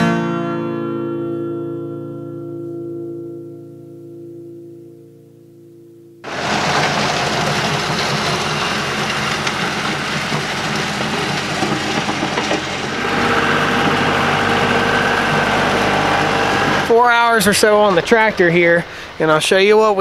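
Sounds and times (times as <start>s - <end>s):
diesel tractor running: 6.2s - 19.3s
gravel scraping and crunching: 6.3s - 19.0s.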